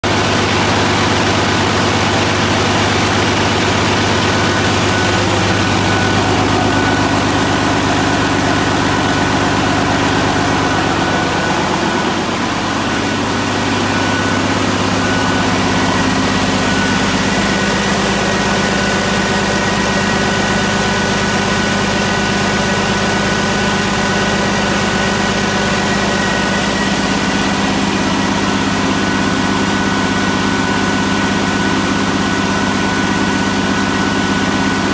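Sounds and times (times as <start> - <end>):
diesel engine idling: 0.0 - 34.9
high whine: 2.6 - 23.3.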